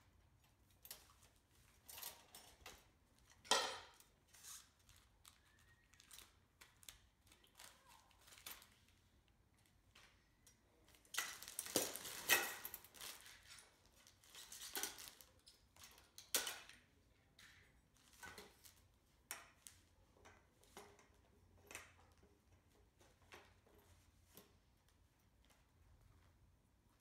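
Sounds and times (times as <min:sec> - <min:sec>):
plastic wrapping rustling: 0:03.9 - 0:10.1, 0:10.9 - 0:16.8.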